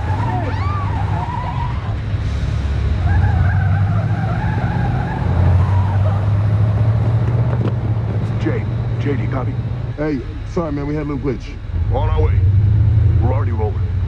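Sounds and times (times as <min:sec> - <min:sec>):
tyres squealing: 0:00.0 - 0:02.0, 0:03.0 - 0:11.0
car engine running hard: 0:00.0 - 0:14.0.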